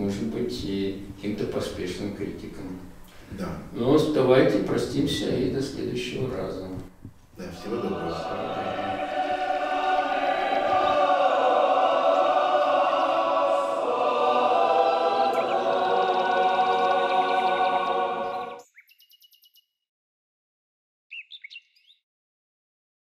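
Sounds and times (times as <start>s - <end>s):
choir singing a held chord: 7.4s - 18.6s
short bird chirps: 18.6s - 19.8s, 21.1s - 22.0s.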